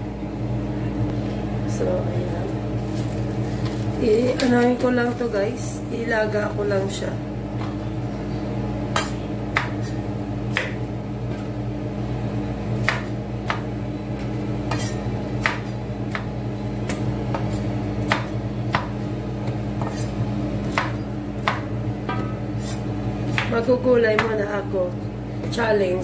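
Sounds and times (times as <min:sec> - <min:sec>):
knife chopping on wooden board: 0:08.9 - 0:11.5, 0:12.8 - 0:24.4.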